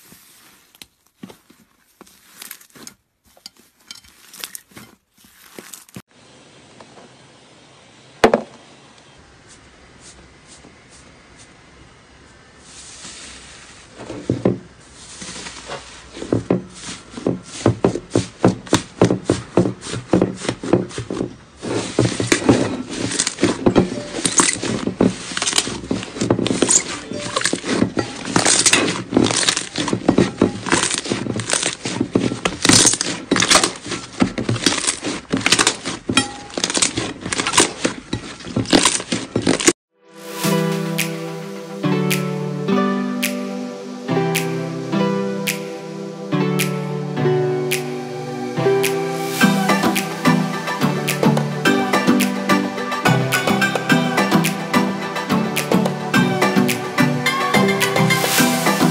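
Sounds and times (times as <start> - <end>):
slime crackling and popping: 26.5 - 30.0.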